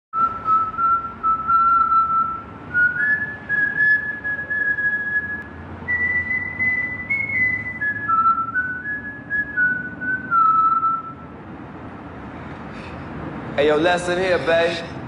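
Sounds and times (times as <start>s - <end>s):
person whistling a slow tune: 0.2s - 11.2s
steady background noise: 0.2s - 15.0s.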